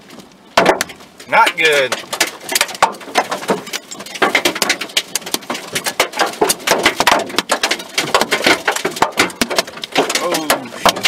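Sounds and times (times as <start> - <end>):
hail striking a car: 0.6 - 11.0.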